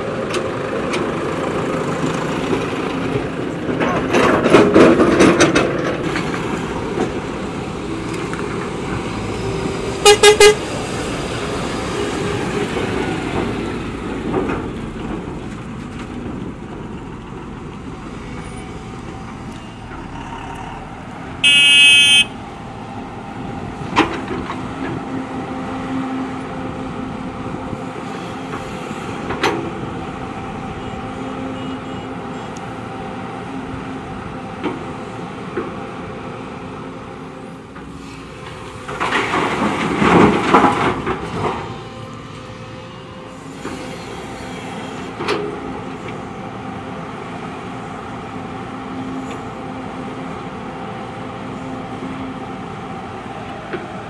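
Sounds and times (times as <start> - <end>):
diesel excavator engines running: 0.0 - 54.0
vehicle horn toots: 10.0 - 10.6, 21.4 - 22.4.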